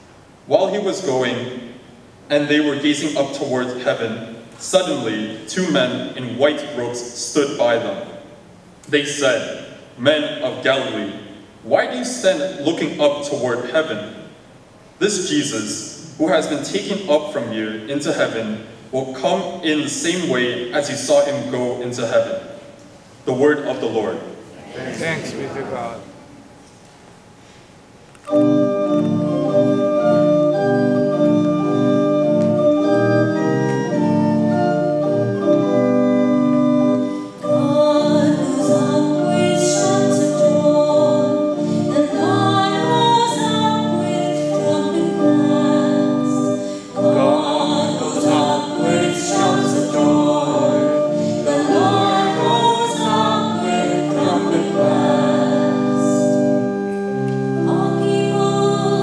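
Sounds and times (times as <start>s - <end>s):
church organ chords: 0.0s - 8.3s, 28.2s - 59.0s
person singing: 37.4s - 56.4s.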